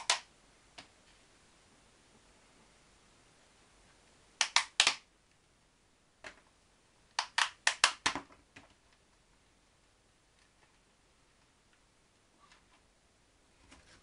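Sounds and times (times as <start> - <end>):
plastic pot clicks and crackles: 7.1 - 8.8.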